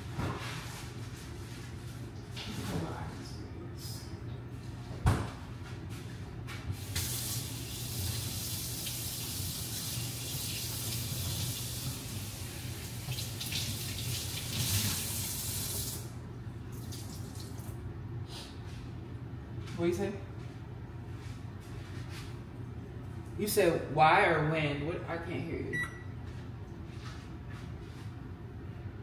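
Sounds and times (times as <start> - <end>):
faucet running into sink: 12.9 - 16.0.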